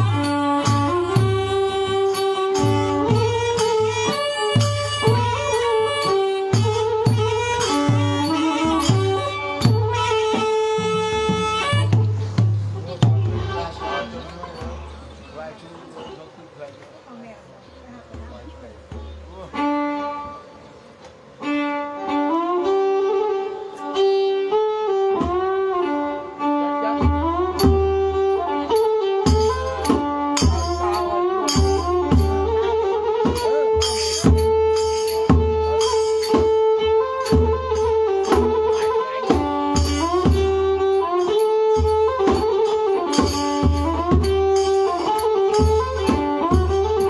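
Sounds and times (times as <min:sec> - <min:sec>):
low drum: 0:00.0 - 0:15.6, 0:17.8 - 0:20.5, 0:25.1 - 0:26.1, 0:26.7 - 0:47.0
sharp percussion strikes: 0:00.0 - 0:16.2, 0:27.0 - 0:47.0
fiddle melody with sliding notes: 0:00.0 - 0:16.3, 0:18.6 - 0:47.0.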